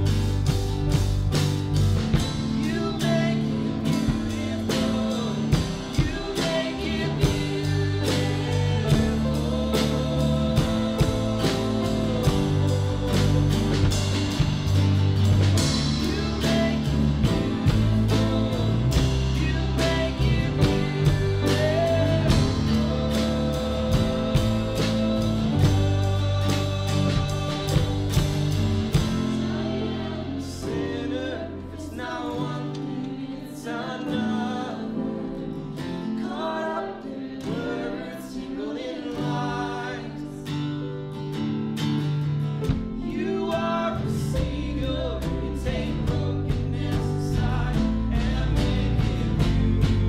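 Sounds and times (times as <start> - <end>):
band playing worship song: 0.0 - 50.0
person singing: 2.2 - 40.6.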